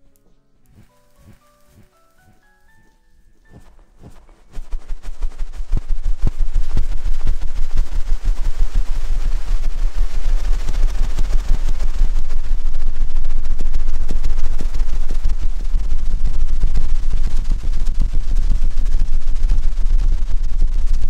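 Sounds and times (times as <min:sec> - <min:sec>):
scratching on a microphone: 0:00.7 - 0:21.0
deep rumble: 0:03.6 - 0:21.0.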